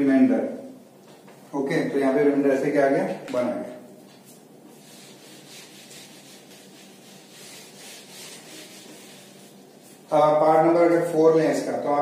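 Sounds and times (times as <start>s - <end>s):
eraser rubbing on whiteboard: 4.7s - 10.1s.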